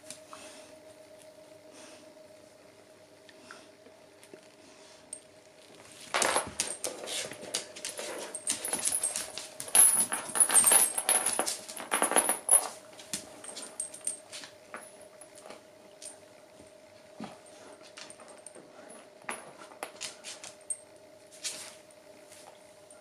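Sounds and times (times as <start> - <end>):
dogs scuffling: 6.0 - 14.6
claws clicking on hard floor: 6.1 - 14.6
chain collars jangling: 6.3 - 12.8, 13.4 - 14.5.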